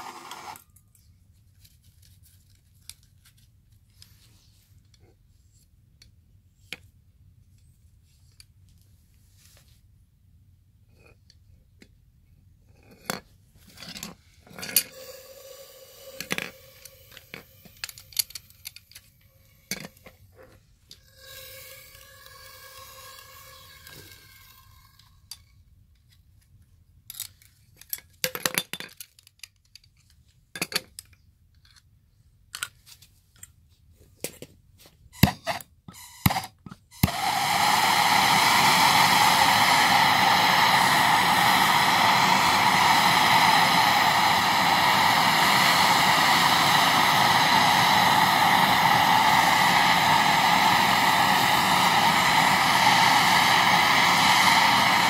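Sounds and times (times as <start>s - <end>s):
gas torch hissing: 14.8s - 20.2s, 21.0s - 25.3s, 35.2s - 55.0s.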